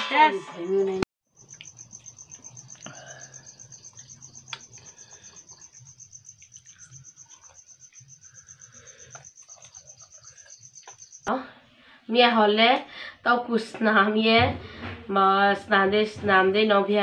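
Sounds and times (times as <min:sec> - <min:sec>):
cricket chirping: 0:00.6 - 0:11.3.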